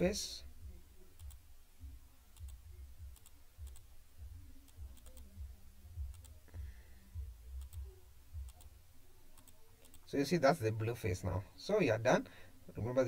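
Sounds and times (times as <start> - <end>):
computer mouse clicking: 1.2 - 1.4, 2.3 - 3.9, 4.6 - 5.4, 6.1 - 6.4, 7.6 - 8.7, 9.4 - 10.1.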